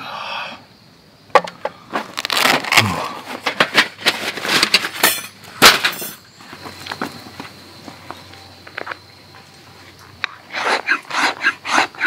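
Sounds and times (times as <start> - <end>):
packaging crinkling and crumpling: 1.9 - 4.5.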